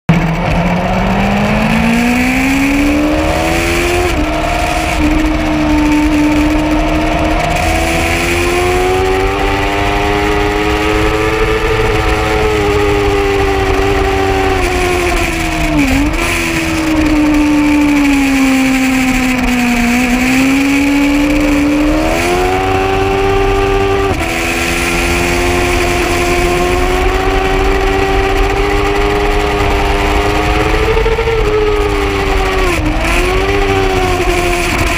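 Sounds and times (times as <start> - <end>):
motorcycle engine at high revs: 0.1 - 34.9.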